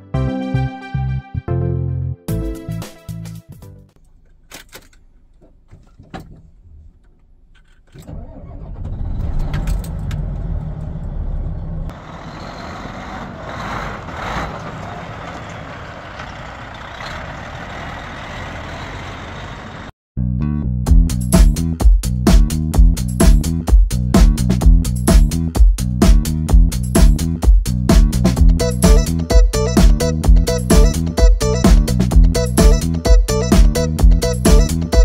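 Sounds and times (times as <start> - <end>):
ignition clicks: 4.0 - 8.7
diesel truck engine starting and idling: 7.8 - 20.0.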